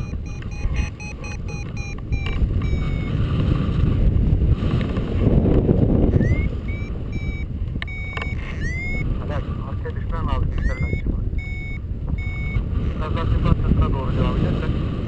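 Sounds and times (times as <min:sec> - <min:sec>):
variometer beeping: 0:00.0 - 0:03.2, 0:06.1 - 0:09.1, 0:10.5 - 0:12.7
wind buffeting microphone: 0:00.0 - 0:15.0.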